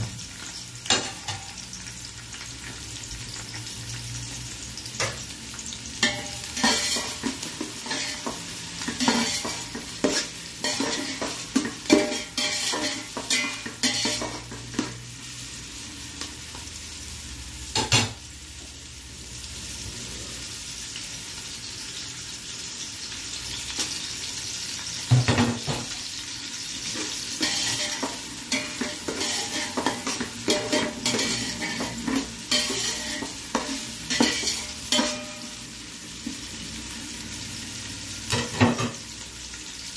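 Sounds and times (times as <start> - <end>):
onions sizzling in hot oil: 0.0 - 39.9
spatula scraping a metal pot: 7.8 - 14.4, 27.4 - 35.4.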